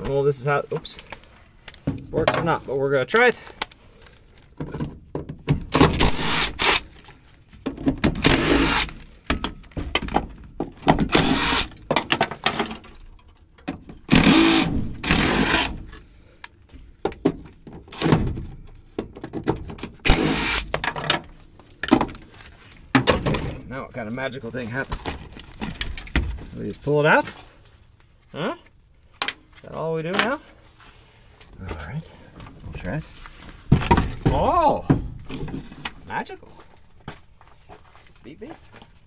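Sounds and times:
cordless drill running: 6.1s - 6.8s, 8.3s - 8.9s, 11.1s - 11.7s, 14.1s - 15.7s, 20.1s - 20.6s.

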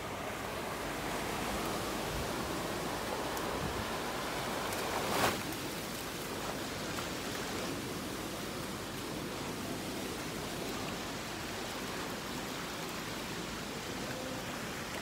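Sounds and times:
rushing floodwater: 0.0s - 15.0s.

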